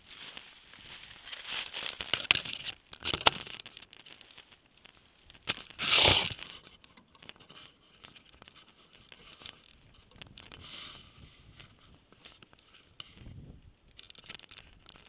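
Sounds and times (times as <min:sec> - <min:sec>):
rustling in dry leaves: 0:00.0 - 0:06.7, 0:07.4 - 0:15.0
sharp clicks and knocks: 0:01.9 - 0:10.6.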